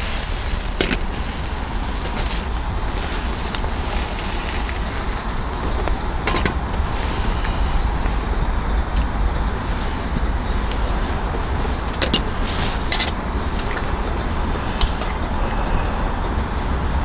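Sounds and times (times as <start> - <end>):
gas stove burner roaring: 0.0 - 17.0.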